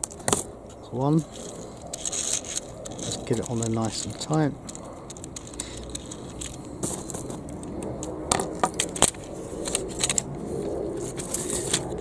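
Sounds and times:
plastic toy rattling and clicking: 1.3s - 10.3s.

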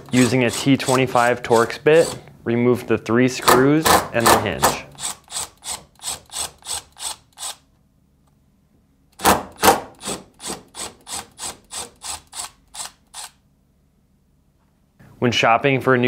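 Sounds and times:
cordless drill clicking: 4.9s - 7.6s, 10.0s - 13.4s.

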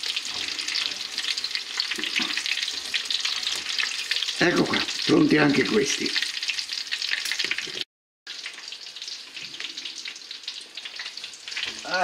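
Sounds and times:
oil sizzling and crackling in a pan: 0.0s - 12.0s.

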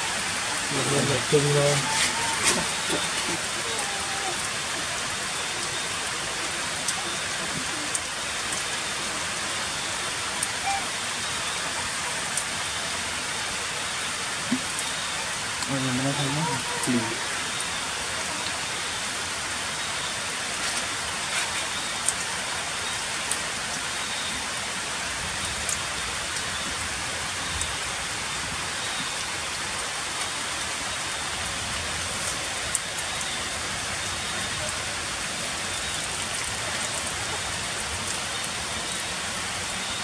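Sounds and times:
heavy rain on stone paving: 0.0s - 40.0s
close raindrop ticks: 20.6s - 22.4s, 25.2s - 27.9s, 31.4s - 33.4s.

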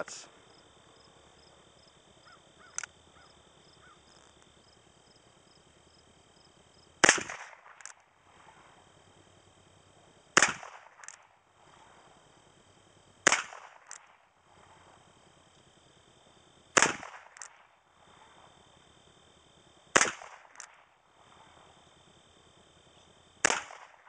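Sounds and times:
revolver gunshots: 7.0s - 8.6s, 10.4s - 11.4s, 13.2s - 14.3s, 16.8s - 17.8s, 19.9s - 20.9s, 23.4s - 24.0s.

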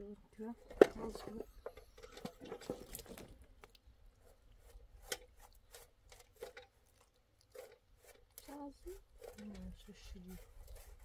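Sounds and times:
hands scraping dough on metal tray: 7.4s - 11.0s.

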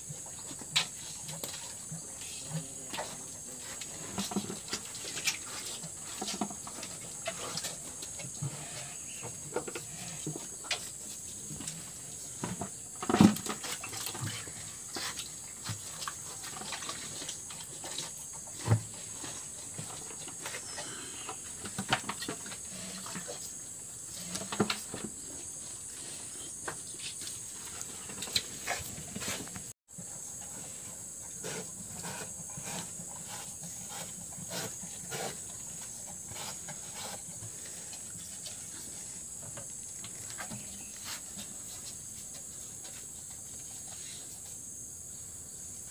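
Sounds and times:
cattle slurping water: 13.5s - 18.3s.

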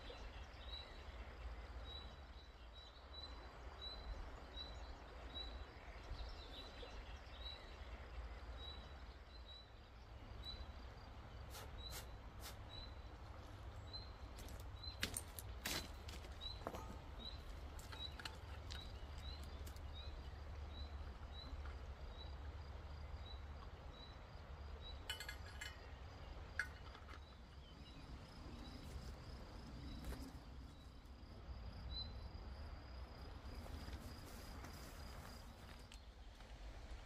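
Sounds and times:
metallic clinking: 25.0s - 26.0s.

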